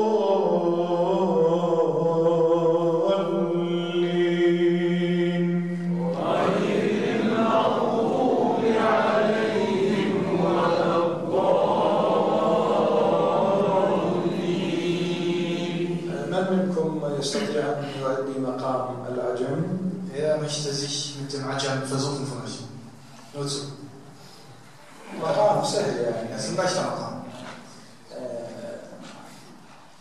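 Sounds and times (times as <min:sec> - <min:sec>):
man reciting through a microphone: 0:00.0 - 0:07.9, 0:15.7 - 0:23.8, 0:25.0 - 0:29.5.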